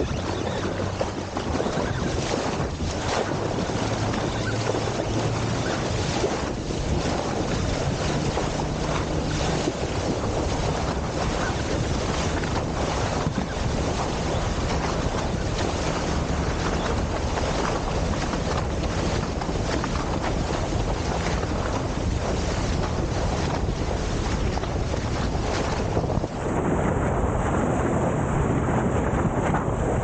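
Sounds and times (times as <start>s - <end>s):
boat engine humming: 0.0s - 30.0s
water rushing: 0.0s - 30.0s
wind buffeting microphone: 0.0s - 30.0s.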